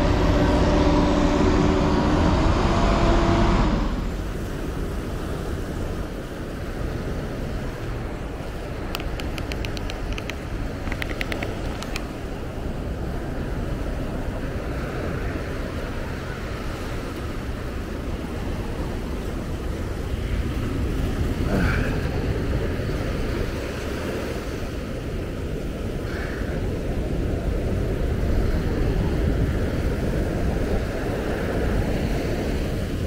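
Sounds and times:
ocean surf breaking: 0:00.0 - 0:33.0
faint clicks: 0:08.9 - 0:12.1.

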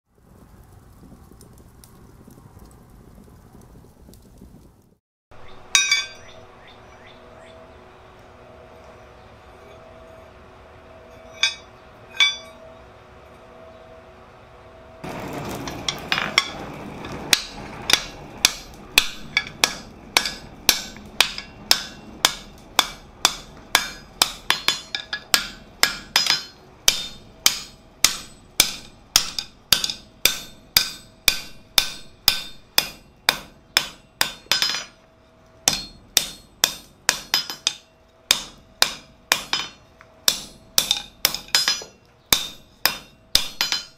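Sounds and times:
hammer ringing on anvil: 0:05.7 - 0:06.4, 0:10.9 - 0:12.8, 0:17.3 - 0:35.0, 0:35.6 - 0:43.9
metal bar clanking on anvil: 0:05.7 - 0:06.4, 0:11.1 - 0:12.7, 0:17.3 - 0:35.0, 0:35.6 - 0:43.9.

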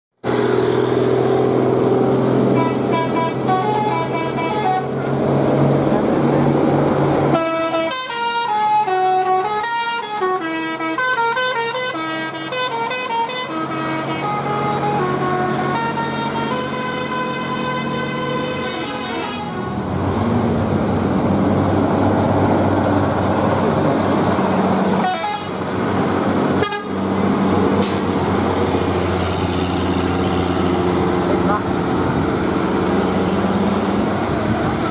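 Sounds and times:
diesel bus engine running: 0:00.2 - 0:34.9
multi-tone musical bus horn: 0:02.4 - 0:05.1, 0:07.3 - 0:20.0, 0:24.9 - 0:25.7, 0:26.5 - 0:27.2, 0:29.0 - 0:31.7.

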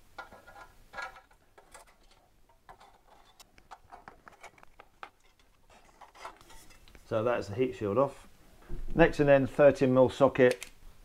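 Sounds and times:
screwdriver clicks and metallic ticks: 0:10.5 - 0:10.8.

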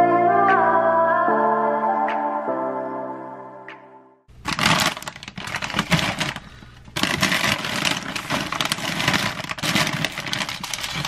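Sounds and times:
plastic bags crackling and rustling: 0:04.3 - 0:11.0.

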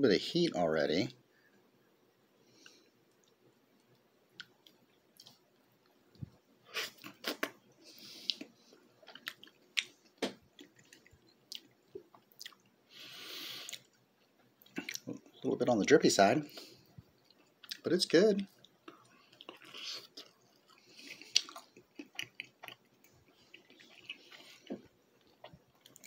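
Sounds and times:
person chewing food: 0:02.6 - 0:15.3, 0:16.5 - 0:17.8, 0:18.5 - 0:26.0
mouth clicks and smacks: 0:21.0 - 0:22.8.

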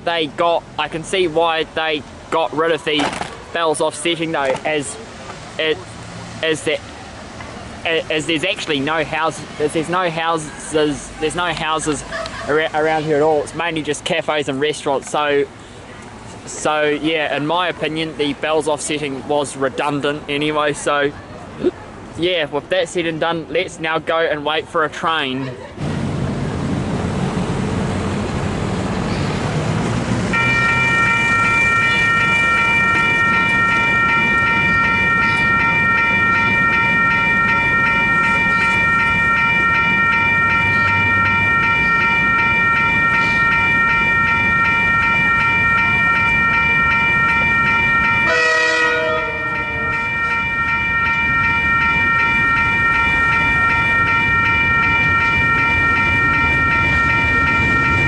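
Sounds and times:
level crossing bells ringing: 0:07.9 - 0:12.6, 0:30.3 - 0:58.0.

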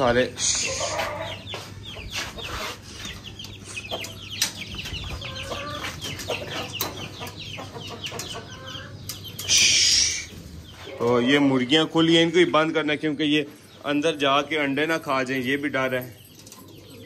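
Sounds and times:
chickens clucking: 0:00.0 - 0:17.0
high falling chirps: 0:08.5 - 0:10.9.

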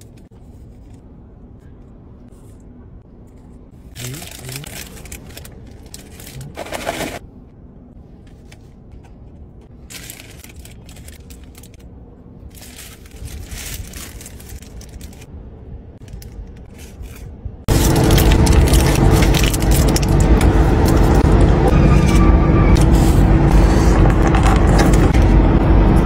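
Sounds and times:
low steady hum: 0:00.0 - 0:26.0
paper wrappers rustling: 0:04.0 - 0:07.2, 0:09.7 - 0:11.8, 0:12.4 - 0:15.3, 0:16.7 - 0:21.4.

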